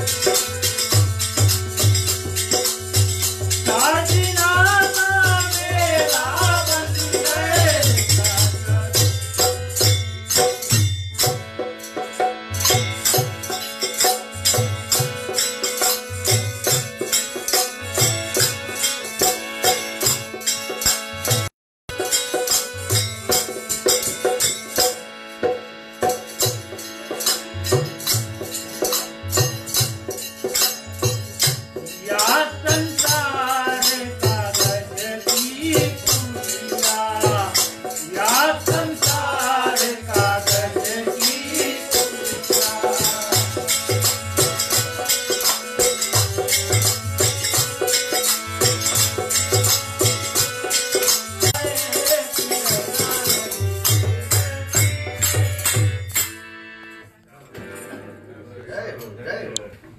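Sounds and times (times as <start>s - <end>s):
dholak drum beat: 0.0s - 56.4s
jingling percussion: 0.0s - 57.0s
harmonium chords: 0.0s - 58.6s
person singing: 32.0s - 44.2s.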